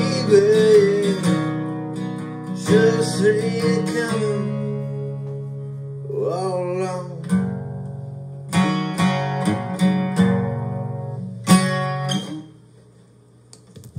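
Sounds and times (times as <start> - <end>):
person singing: 0.0 - 1.4, 2.6 - 5.0
acoustic guitar strumming: 0.0 - 12.8.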